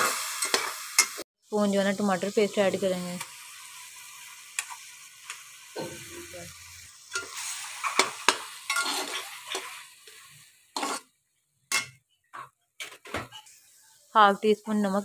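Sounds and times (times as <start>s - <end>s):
meat sizzling in a pan: 0.0s - 11.1s, 13.4s - 14.9s
spatula scraping a pan: 7.1s - 11.1s.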